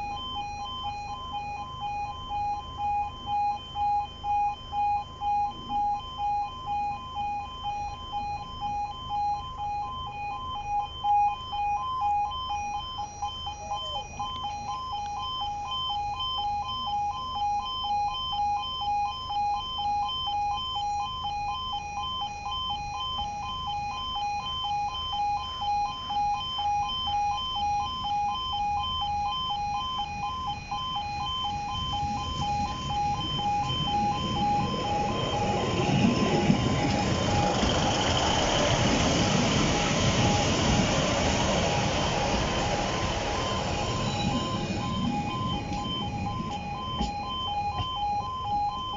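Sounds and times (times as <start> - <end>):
level crossing alarm pulsing: 0.0 - 48.9
diesel train rumbling past: 31.5 - 47.8.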